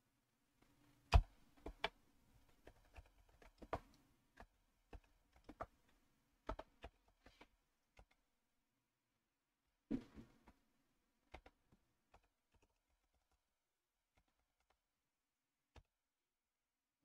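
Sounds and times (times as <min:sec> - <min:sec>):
typing on computer keyboard: 0:11.3 - 0:13.4.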